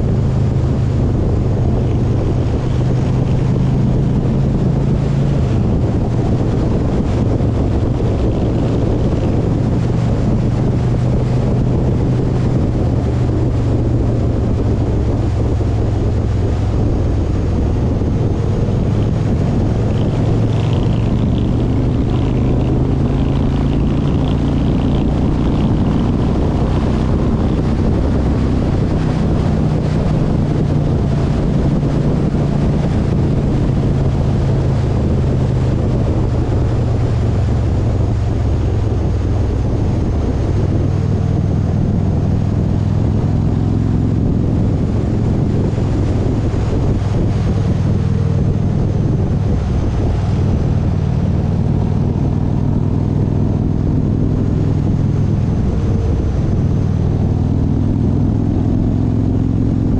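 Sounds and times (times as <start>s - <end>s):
road and wind noise: 0.0s - 59.9s
vehicle engine running: 0.0s - 59.9s.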